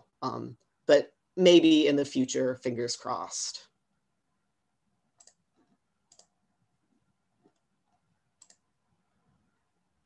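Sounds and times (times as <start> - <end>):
computer mouse clicks: 5.1 - 6.5, 7.4 - 8.8.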